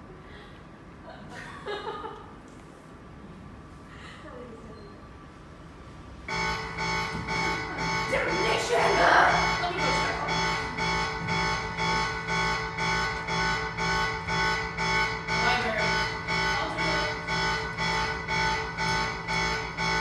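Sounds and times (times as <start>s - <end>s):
pulsing electronic alarm tone: 6.3s - 20.0s.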